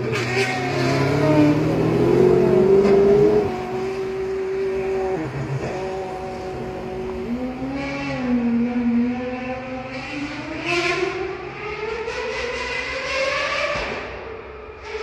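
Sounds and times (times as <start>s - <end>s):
race car engine accelerating: 0.0s - 11.7s.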